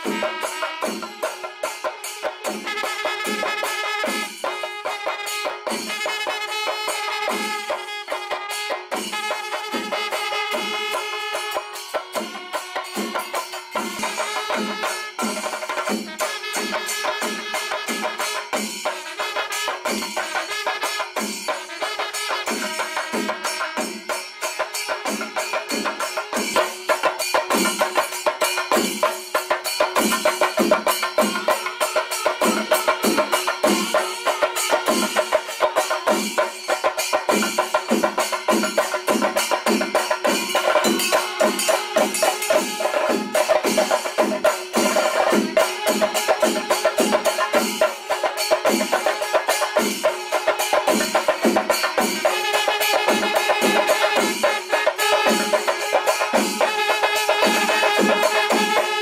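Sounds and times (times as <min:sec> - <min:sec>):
fast drumming: 0:00.0 - 0:59.0
wind instrument long notes: 0:52.2 - 0:59.0.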